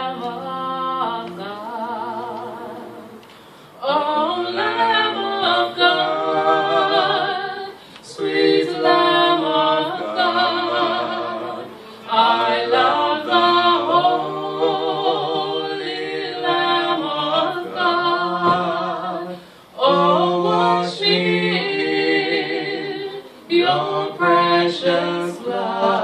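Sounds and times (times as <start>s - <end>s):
man and woman singing a hymn: 0.0s - 26.0s.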